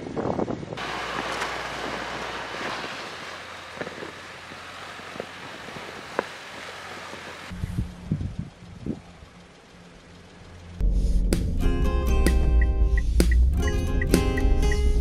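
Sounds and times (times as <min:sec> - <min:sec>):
van driving over crunching snow: 0:00.3 - 0:10.8
wind on microphone: 0:05.1 - 0:09.1.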